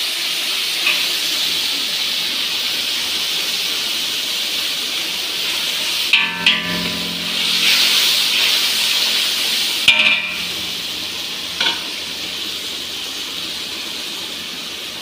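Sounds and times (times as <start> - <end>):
spice paste sizzling in oil: 0.0 - 15.0
metal spoon clinking on pan: 6.1 - 10.7, 11.6 - 11.9.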